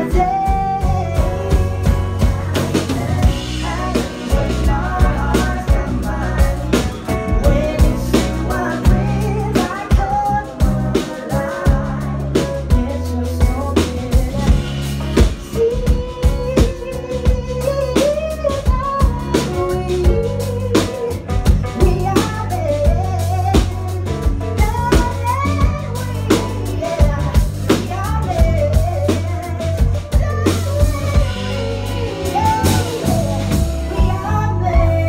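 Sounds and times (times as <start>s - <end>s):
live pop band playing: 0.0s - 35.0s
woman singing: 0.0s - 35.0s.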